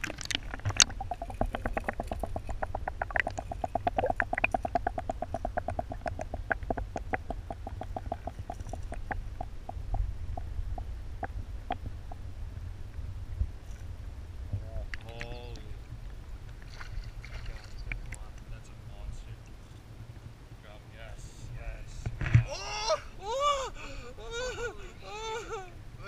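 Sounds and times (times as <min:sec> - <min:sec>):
rapid underwater clicking: 0:00.0 - 0:12.2, 0:16.4 - 0:18.5
muffled water rumble: 0:00.0 - 0:26.0.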